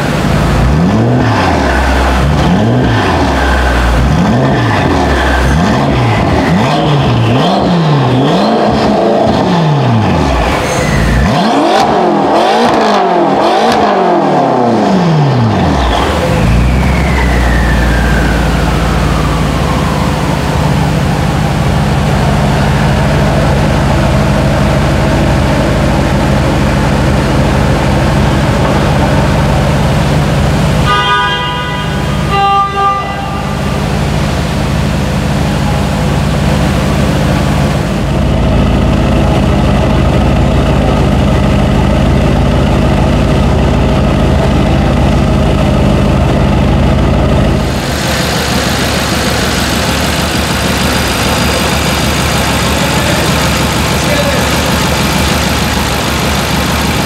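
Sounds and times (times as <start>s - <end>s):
car engine idling: 0.0s - 57.0s
car horn: 30.7s - 34.2s.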